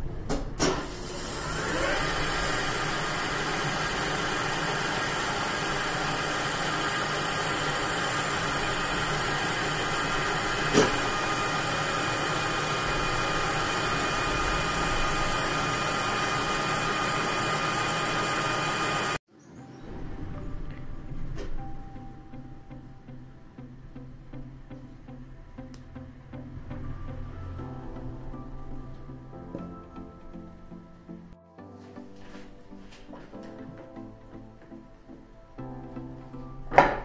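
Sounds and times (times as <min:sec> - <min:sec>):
lathe running with whine: 0:00.9 - 0:19.2.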